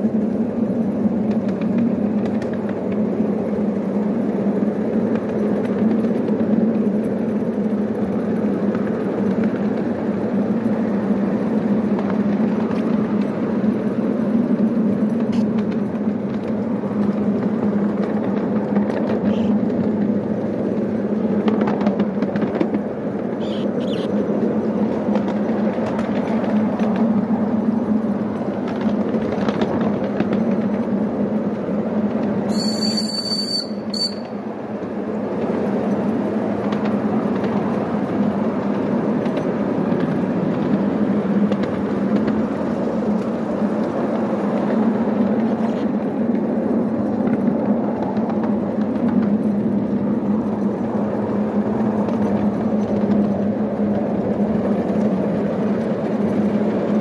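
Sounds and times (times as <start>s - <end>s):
train rumbling along track: 0.0s - 57.0s
steam whistle: 32.5s - 34.4s.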